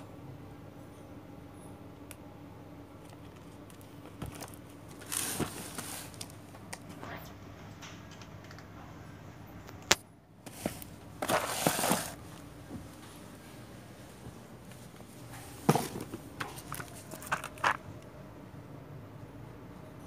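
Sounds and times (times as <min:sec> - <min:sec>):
faint steady hum: 0:00.0 - 0:20.0
parcel wrapping rustling: 0:03.2 - 0:06.5, 0:10.5 - 0:13.4, 0:14.0 - 0:17.8.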